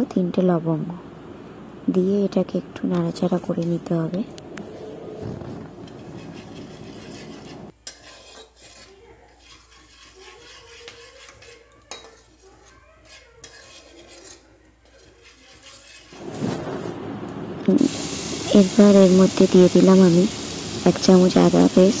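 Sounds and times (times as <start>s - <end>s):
spatula scraping pan: 4.6s - 16.6s
faint sizzle of spices frying: 6.4s - 22.0s
spatula clinking against pan: 7.8s - 12.4s, 13.0s - 16.0s.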